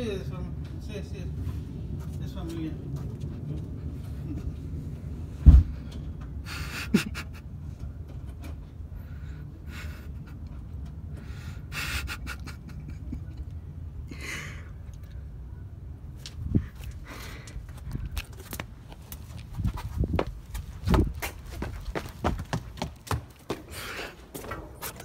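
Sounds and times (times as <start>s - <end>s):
person breathing close to microphone: 16.5s - 18.2s, 23.7s - 24.3s.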